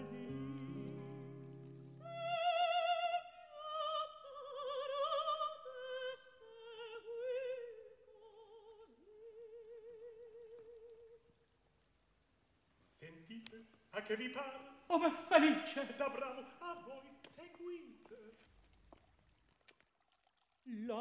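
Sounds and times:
woman singing operatically: 0:02.0 - 0:11.2.

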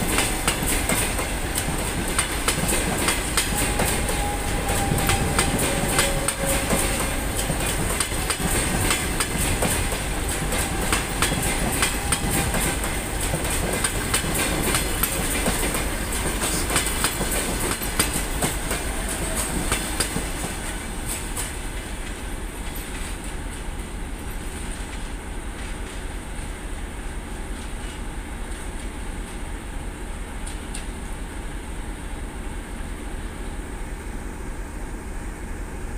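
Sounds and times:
train wheels clattering: 0:00.0 - 0:26.5
train rolling rumble: 0:00.0 - 0:35.9.

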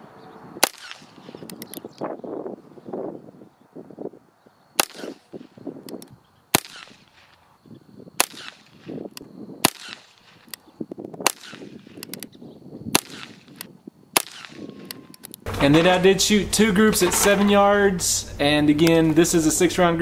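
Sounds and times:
revolver gunshots: 0:00.6 - 0:01.8, 0:04.8 - 0:05.7, 0:06.5 - 0:07.4, 0:08.1 - 0:10.5, 0:11.2 - 0:12.2, 0:12.9 - 0:14.9.

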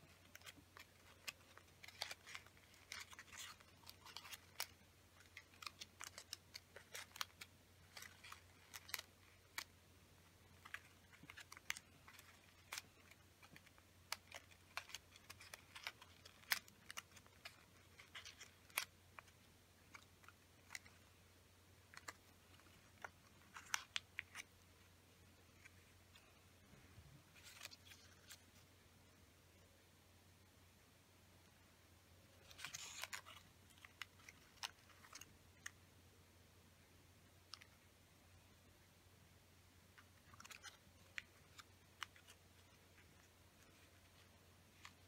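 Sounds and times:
paper crinkling and crackling: 0:00.0 - 0:21.2, 0:21.8 - 0:26.4, 0:27.2 - 0:28.6, 0:32.4 - 0:35.8, 0:39.9 - 0:45.0
faint low hum: 0:00.0 - 0:45.0.

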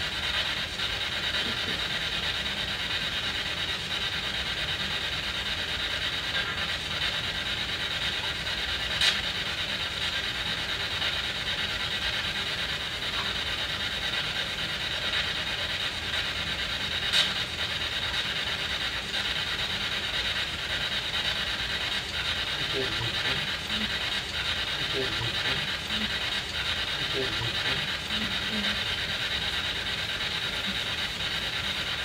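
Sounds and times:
choppy radio static: 0:01.3 - 0:02.0, 0:21.9 - 0:32.0.

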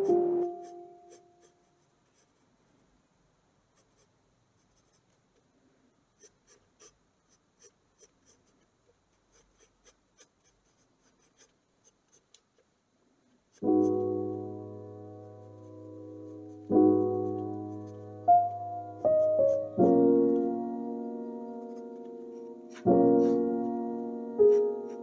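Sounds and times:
pencil scratching on paper: 0:00.0 - 0:02.5, 0:03.7 - 0:05.2, 0:06.2 - 0:12.4, 0:13.5 - 0:14.1, 0:15.2 - 0:19.9, 0:21.2 - 0:25.0.

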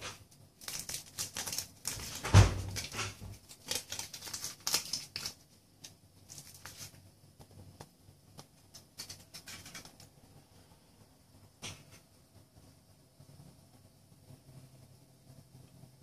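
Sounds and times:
foil wrapper crinkling and tearing: 0:00.2 - 0:07.0, 0:08.7 - 0:10.1.

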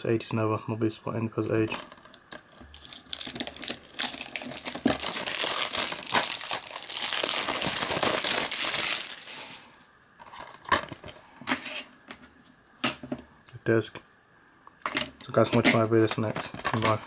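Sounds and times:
plastic wrap crackling and crinkling: 0:01.4 - 0:11.1, 0:15.7 - 0:17.0.

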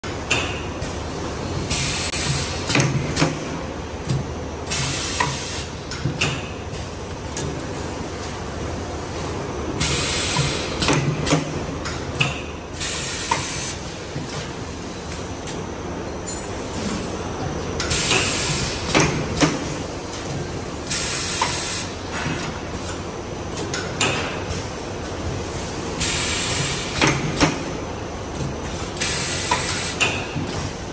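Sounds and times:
machine mechanical hum: 0:00.0 - 0:30.9.

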